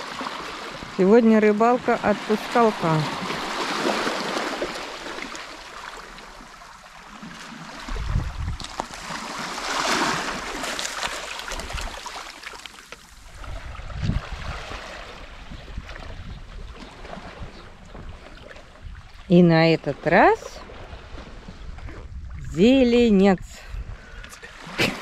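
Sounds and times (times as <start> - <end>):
waves washing over pebbles: 0.0 - 15.4.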